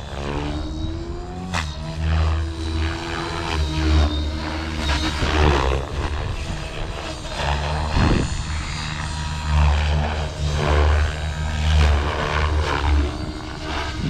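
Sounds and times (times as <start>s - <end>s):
model helicopter rotor whine: 0.0s - 14.0s.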